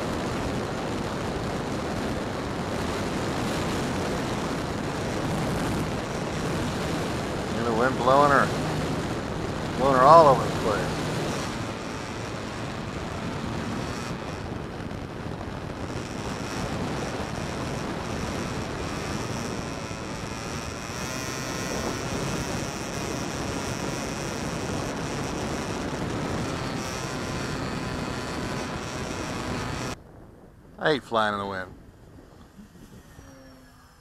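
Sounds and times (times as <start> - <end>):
electric motor whine: 0.0 - 30.0, 32.2 - 34.0.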